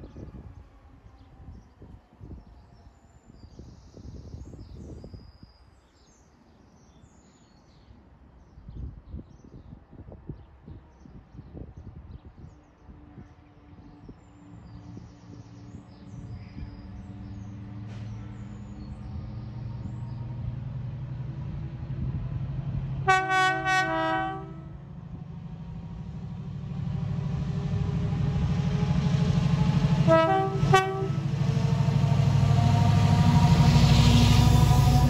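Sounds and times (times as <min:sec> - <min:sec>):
diesel locomotive engine running: 0:16.1 - 0:35.0
two-tone train horn: 0:23.0 - 0:24.8, 0:29.8 - 0:31.8.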